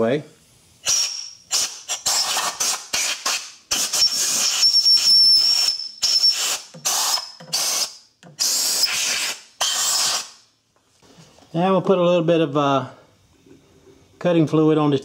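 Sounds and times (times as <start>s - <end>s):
thin whistle: 3.9s - 7.2s.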